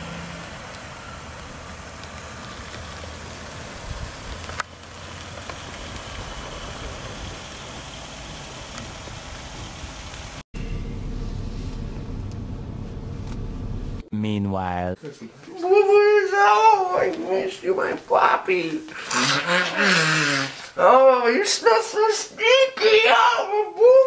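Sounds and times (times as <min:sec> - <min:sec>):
minivan idling: 0:00.0 - 0:14.0.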